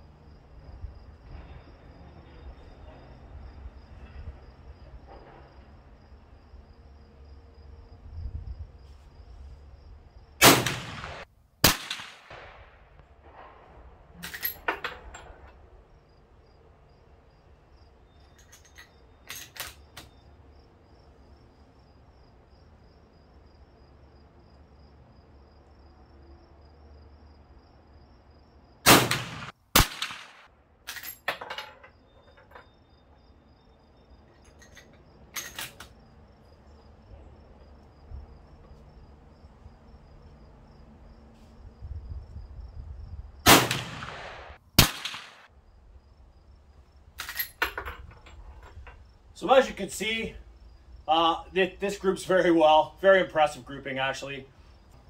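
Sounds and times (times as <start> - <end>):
insects chirping: 0.0 - 55.0
rifle shots: 10.4 - 13.5, 28.8 - 30.5, 43.5 - 45.5.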